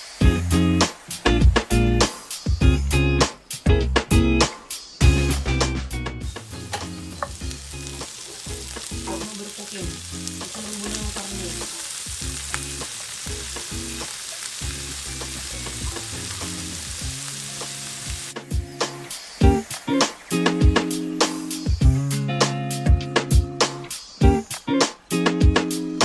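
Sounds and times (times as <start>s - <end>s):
vegetables sizzling in oil: 0.0s - 3.6s, 6.2s - 22.8s.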